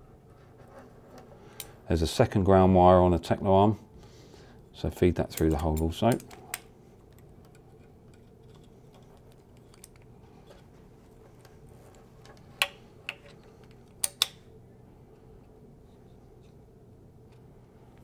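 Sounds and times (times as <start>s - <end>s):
low room hum: 0.0s - 18.0s.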